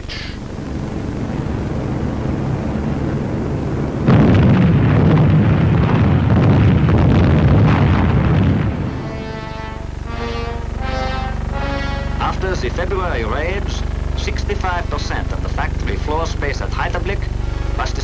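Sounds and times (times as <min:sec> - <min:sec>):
low rumble: 0:00.0 - 0:18.0
bombs exploding: 0:00.4 - 0:18.0
music with held notes: 0:09.1 - 0:12.6.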